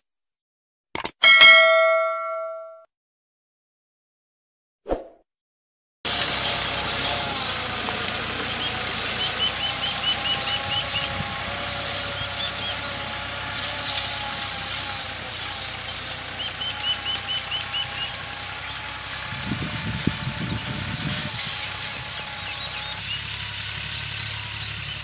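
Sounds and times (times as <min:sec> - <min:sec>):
tractor diesel engine under load: 0:06.0 - 0:25.0.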